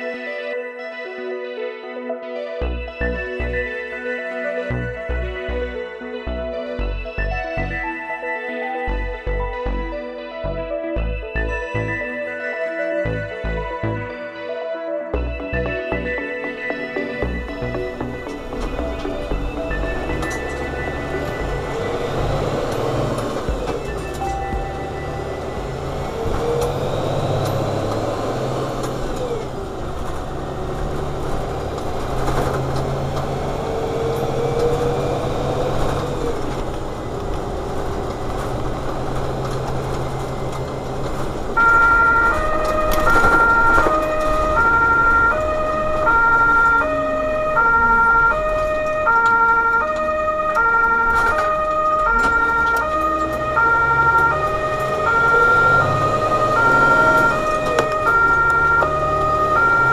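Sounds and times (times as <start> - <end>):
truck engine and road noise: 2.6 - 14.3, 15.1 - 59.9
two-tone siren: 15.4 - 59.9.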